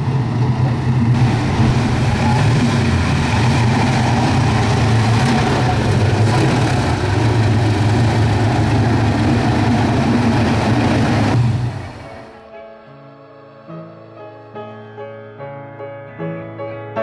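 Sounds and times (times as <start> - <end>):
deep engine running at low revs: 0.0 - 12.4.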